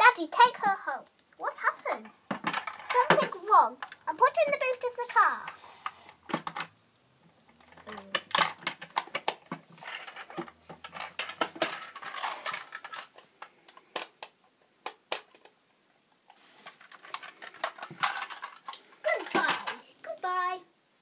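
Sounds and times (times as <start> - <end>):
plastic toy pieces clicking: 7.6 - 15.6, 16.9 - 19.8.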